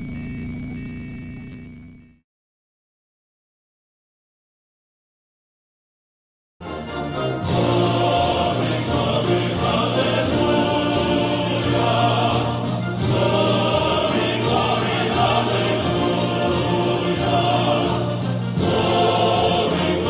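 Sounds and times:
choir singing sustained chords: 6.6s - 20.0s.

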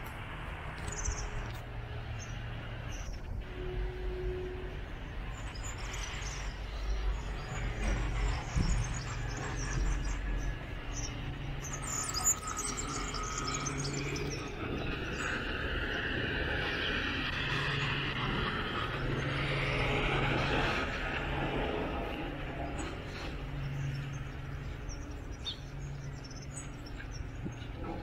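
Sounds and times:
low rumble of traffic: 0.0s - 28.0s
small birds chirping: 0.8s - 3.2s, 5.3s - 17.3s, 22.6s - 27.8s.

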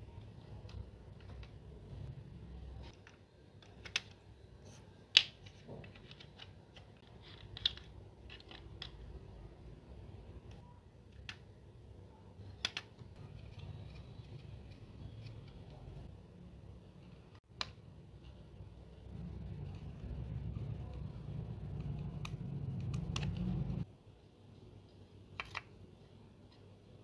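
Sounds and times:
light clicks and taps of small parts: 2.8s - 9.2s.

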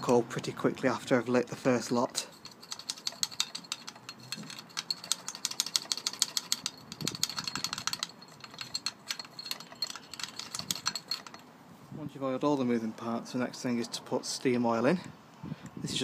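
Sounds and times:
small metal parts clicking and rattling: 2.2s - 11.5s.

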